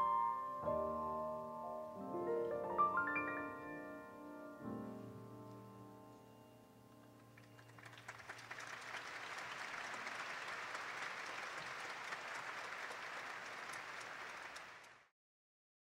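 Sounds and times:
piano and vibraphone chord: 0.0s - 7.4s
audience applauding: 7.4s - 15.1s.

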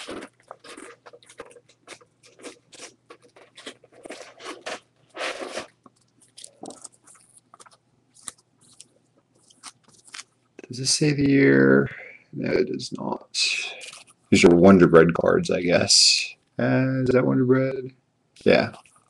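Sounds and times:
plastic card sleeves rustling: 2.3s - 10.4s.

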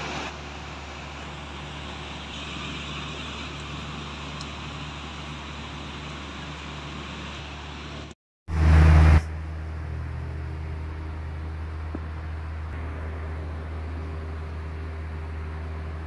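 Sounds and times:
steady low hum with hiss: 9.3s - 16.0s.

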